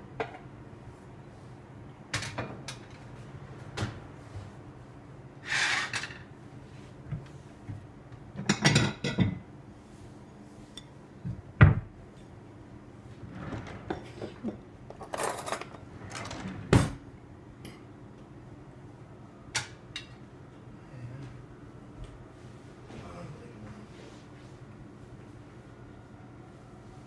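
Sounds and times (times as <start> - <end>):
plates clattering and clinking: 8.4 - 9.4.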